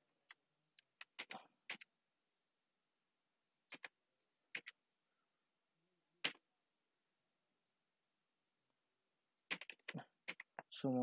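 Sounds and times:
keyboard keys clicking: 4.5s - 4.8s, 9.5s - 10.6s.

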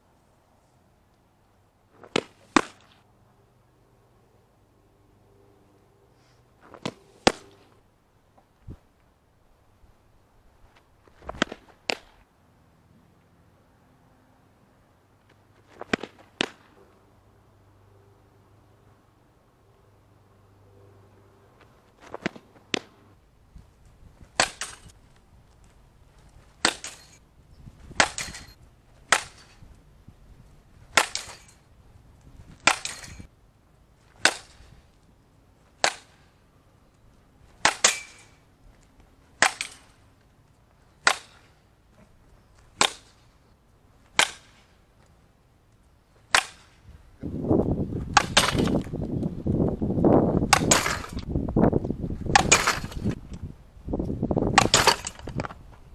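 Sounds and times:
bat striking softballs: 2.0s - 3.0s, 6.7s - 7.7s, 11.3s - 12.2s, 15.8s - 16.8s, 22.0s - 23.0s, 24.3s - 25.0s, 26.5s - 27.2s, 27.9s - 29.6s, 30.9s - 31.6s, 32.6s - 33.3s, 34.1s - 34.8s, 35.8s - 36.4s, 37.5s - 38.4s, 39.4s - 40.0s, 41.0s - 41.5s, 42.7s - 43.2s, 44.1s - 44.7s, 46.3s - 46.8s, 48.1s - 49.0s, 50.5s - 51.3s, 52.3s - 53.2s, 54.5s - 55.6s.

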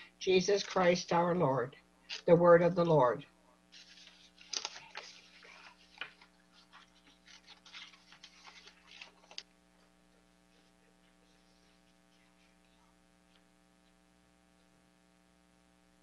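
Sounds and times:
low electrical hum: 0.0s - 16.0s
handling noise rustling and clicks: 3.7s - 9.5s.

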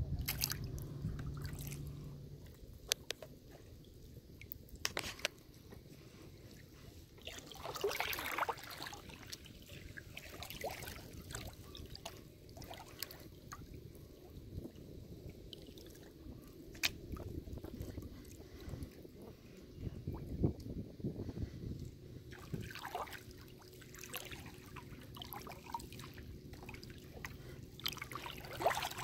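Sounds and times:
water splashing around kayak: 0.0s - 29.0s
small drips and ticks: 0.2s - 8.0s, 8.8s - 20.8s.

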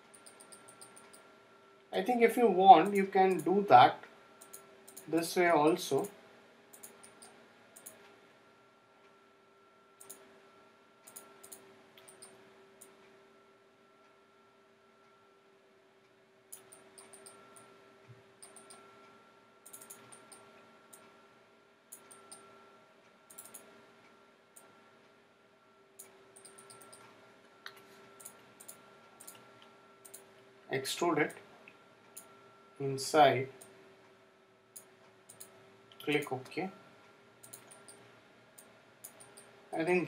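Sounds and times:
faint steady hum: 0.0s - 40.0s
computer mouse buttons clicking: 0.1s - 1.3s, 4.4s - 5.2s, 6.7s - 8.2s, 10.0s - 10.2s, 11.1s - 13.0s, 16.5s - 17.7s, 18.4s - 18.9s, 19.6s - 21.2s, 21.9s - 22.5s, 23.3s - 23.7s, 26.0s - 30.3s, 34.8s - 36.3s, 37.4s - 39.5s.

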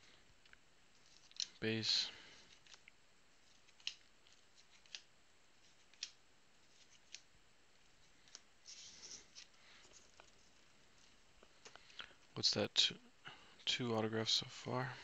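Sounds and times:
rustle of cards: 0.9s - 12.0s
cards flipped with crisp clicks: 3.5s - 7.3s.

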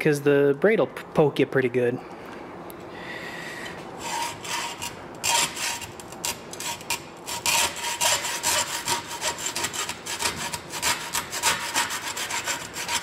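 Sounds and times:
hacksaw cutting hose: 4.0s - 13.0s.

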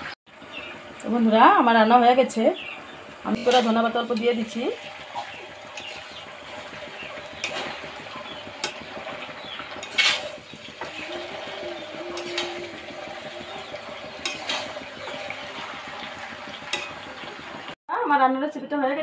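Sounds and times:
low sizzle: 0.0s - 17.8s
metal spatula scraping a pan: 3.3s - 4.4s, 5.1s - 15.8s.

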